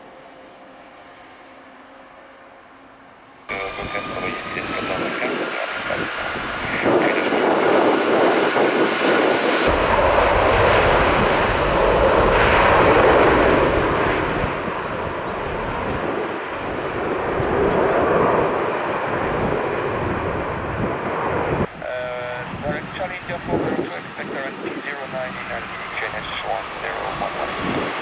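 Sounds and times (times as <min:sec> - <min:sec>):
jet engine roar: 0:00.0 - 0:28.0
deep rumble: 0:03.5 - 0:21.8.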